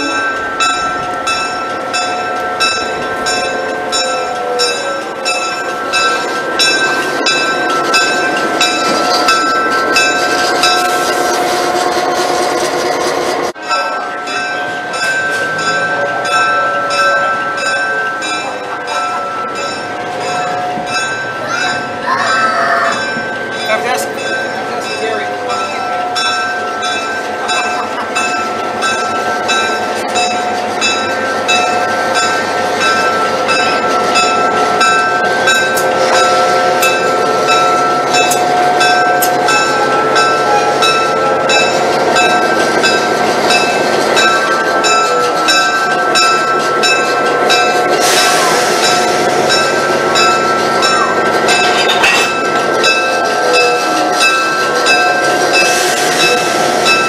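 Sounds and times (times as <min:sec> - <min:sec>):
locomotive bell ringing: 0:00.0 - 0:57.0
locomotive rolling past: 0:00.0 - 0:57.0
hiss: 0:47.9 - 0:49.2.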